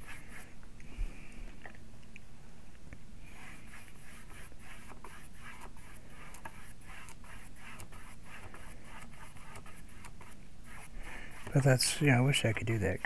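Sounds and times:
paintbrush scraping on panel: 0:00.0 - 0:00.5, 0:03.3 - 0:13.0.

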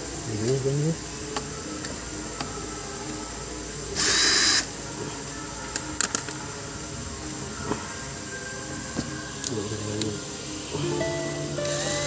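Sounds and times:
power drill driving a screw: 0:11.7 - 0:12.0.

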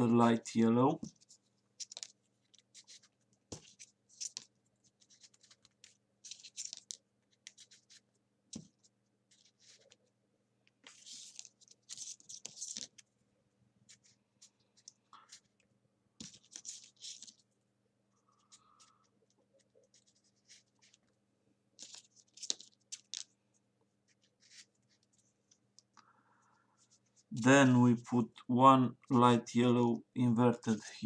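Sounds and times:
paper rustling and scraping: 0:01.0 - 0:10.0, 0:10.8 - 0:13.0, 0:16.2 - 0:17.4, 0:21.8 - 0:23.3
small paper clicks: 0:01.2 - 0:10.0, 0:10.6 - 0:13.0, 0:16.2 - 0:17.4, 0:21.8 - 0:23.3.

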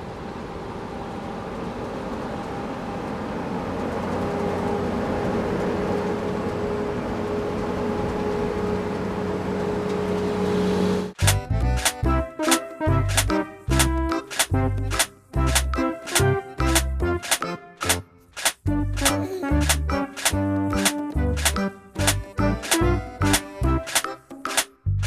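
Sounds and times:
truck engine running: 0:03.2 - 0:25.0
music: 0:11.2 - 0:25.0.

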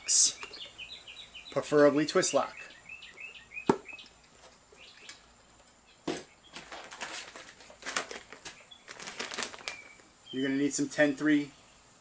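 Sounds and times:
plastic packaging crinkling: 0:06.5 - 0:10.1.

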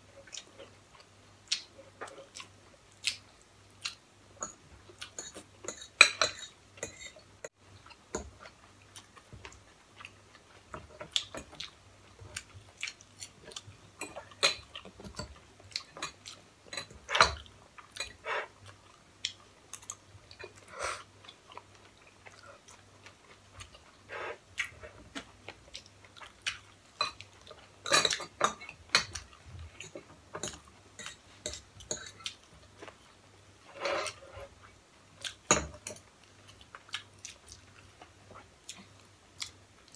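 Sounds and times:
chewing: 0:07.8 - 0:33.1, 0:36.2 - 0:39.9.

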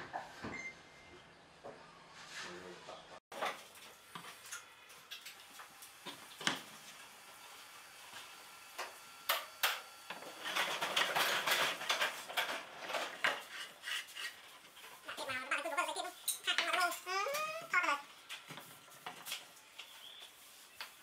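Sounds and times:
wooden disc scraping and clattering: 0:10.4 - 0:15.0.

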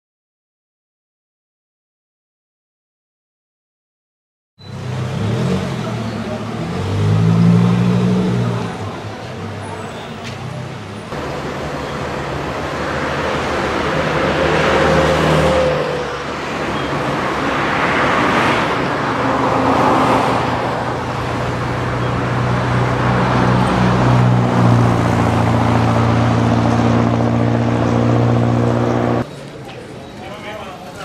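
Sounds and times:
cars passing on highway: 0:04.7 - 0:29.6.

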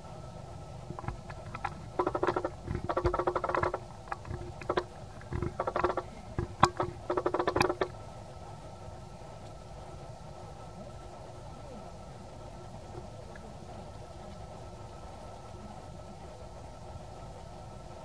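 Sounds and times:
macaque chattering: 0:00.9 - 0:07.9.

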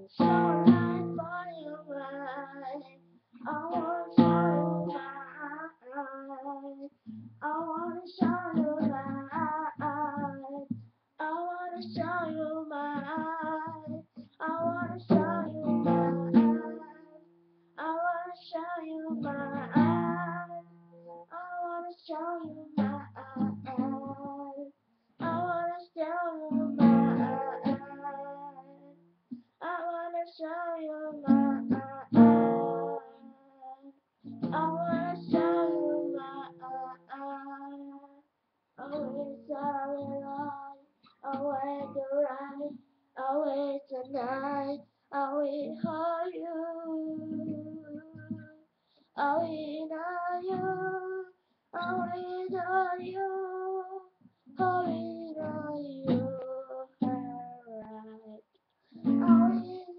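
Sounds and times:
young woman singing: 0:00.0 - 0:29.0, 0:29.6 - 0:59.9
strummed acoustic guitar: 0:00.2 - 0:01.6, 0:03.4 - 0:05.2, 0:11.7 - 0:17.0, 0:19.1 - 0:20.6, 0:22.5 - 0:24.3, 0:26.4 - 0:28.4, 0:31.2 - 0:33.2, 0:34.3 - 0:36.8, 0:57.0 - 0:57.6, 0:59.0 - 0:59.9.

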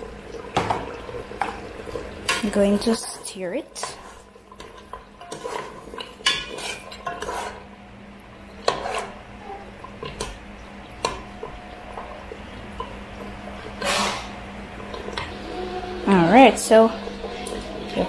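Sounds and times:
spoon scraping metal pot: 0:03.8 - 0:07.6, 0:08.6 - 0:09.2.

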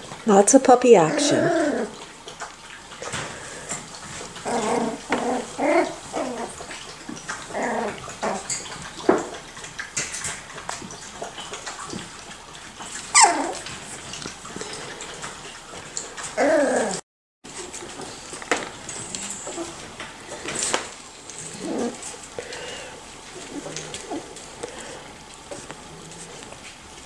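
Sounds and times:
puppy yelping: 0:01.0 - 0:02.0, 0:04.4 - 0:06.8, 0:13.1 - 0:13.7, 0:16.3 - 0:17.0
puppies yipping and whining: 0:01.0 - 0:02.7, 0:03.8 - 0:09.7, 0:12.7 - 0:17.0, 0:18.0 - 0:22.3.

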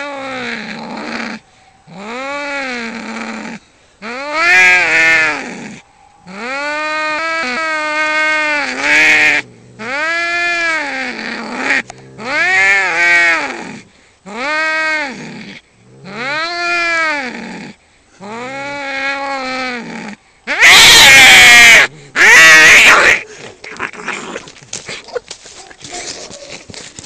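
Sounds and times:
cats yowling: 0:00.0 - 0:13.6, 0:18.2 - 0:24.2
cats screeching harshly: 0:20.5 - 0:24.2.

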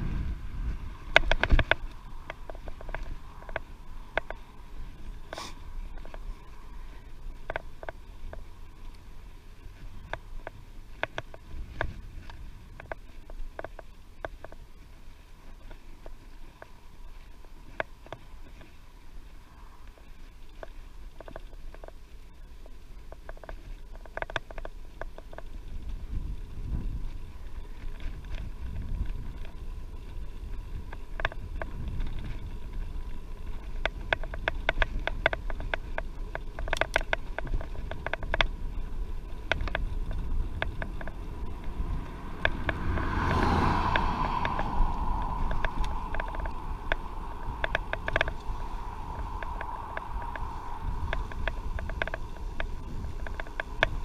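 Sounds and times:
bicycle clicks and rattles: 0:00.0 - 0:54.0
wind buffeting microphone: 0:00.0 - 0:54.0.

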